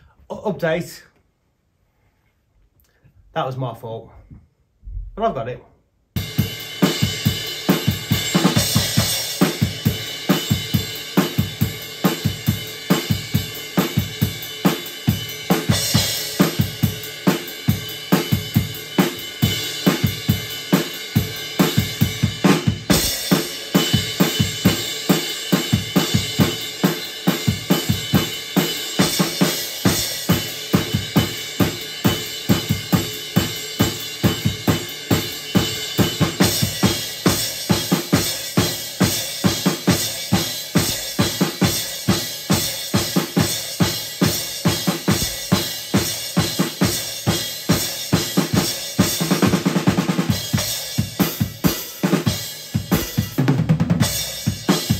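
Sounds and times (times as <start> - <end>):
bass drum: 4.3 - 5.3, 21.2 - 26.8, 27.4 - 54.9
snare drum: 6.2 - 54.9.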